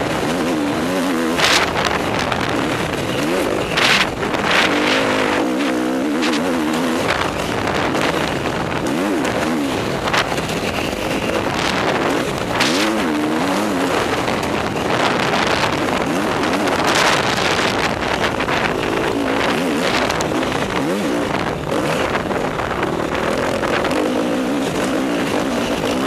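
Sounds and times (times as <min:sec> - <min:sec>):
motocross bike engine revving: 0:00.0 - 0:26.0
wind rush: 0:00.0 - 0:26.0.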